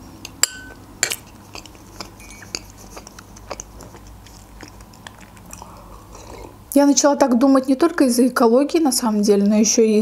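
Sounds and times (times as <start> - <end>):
fork clinking on plate: 0.3 - 1.2
quiet chewing: 1.0 - 6.7.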